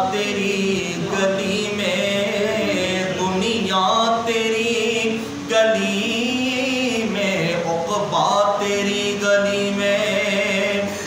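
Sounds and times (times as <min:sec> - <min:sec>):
man singing: 0:00.0 - 0:11.0.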